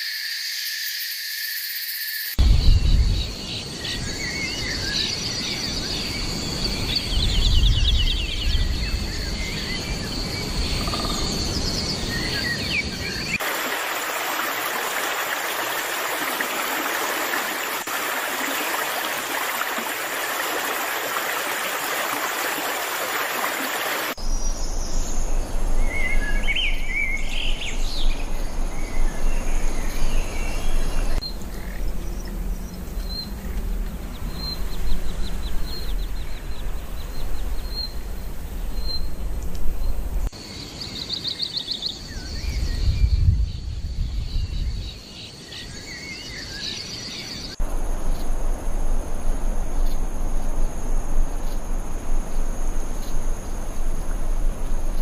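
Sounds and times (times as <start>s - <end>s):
birds chirping: 2.4s - 48.2s
stream rushing: 13.1s - 24.2s, 47.6s - 55.0s.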